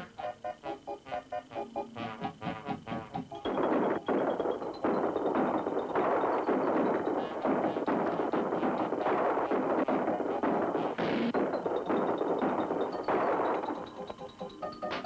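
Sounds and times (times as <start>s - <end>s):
cartoon rifle gunfire: 3.5s - 13.9s.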